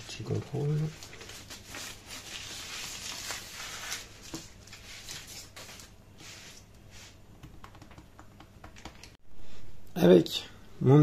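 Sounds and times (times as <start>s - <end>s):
baking paper rustling: 0.0s - 7.2s.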